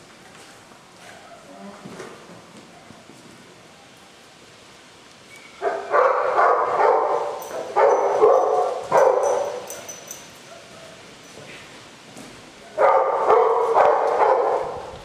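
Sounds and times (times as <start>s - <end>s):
dog barking in tiled room: 5.6s - 11.2s, 12.6s - 15.0s.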